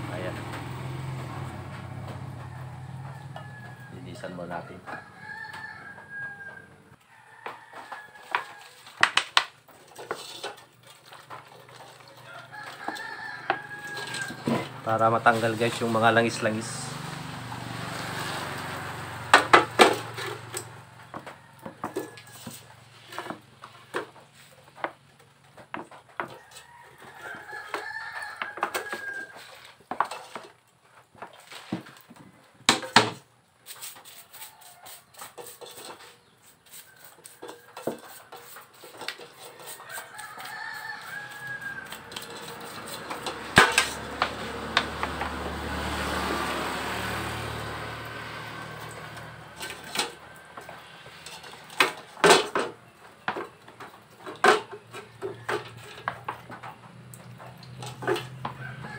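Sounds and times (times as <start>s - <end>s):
rooster crowing: 2.1s - 8.9s, 12.0s - 17.1s, 20.1s - 22.7s, 26.2s - 29.6s, 34.3s - 35.2s, 36.7s - 52.4s, 58.0s - 58.9s.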